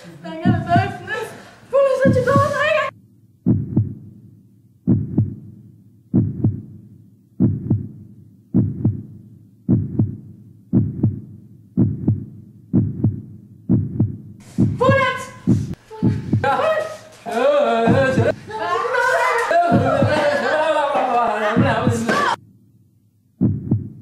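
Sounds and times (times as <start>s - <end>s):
heartbeat thumps: 0.4s - 1.2s, 2.0s - 16.7s, 17.9s - 18.4s, 19.6s - 20.3s, 21.6s - 22.4s, 23.4s - 24.0s.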